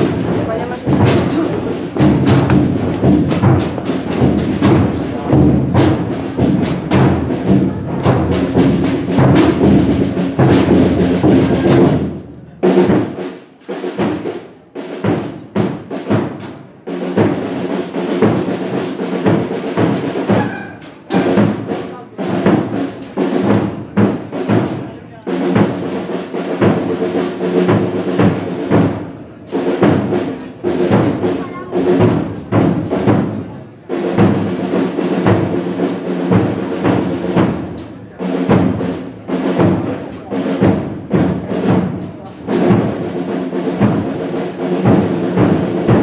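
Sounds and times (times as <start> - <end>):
held low instrumental notes: 0.0 - 12.8
drums beating: 0.0 - 46.0.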